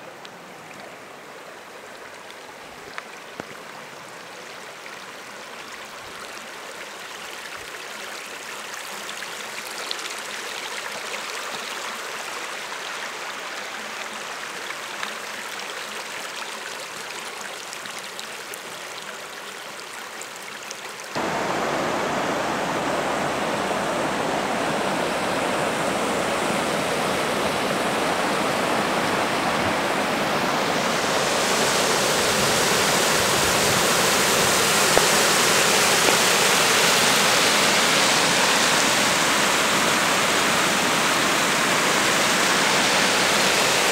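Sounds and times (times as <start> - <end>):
floodwater rushing: 21.1 - 43.9.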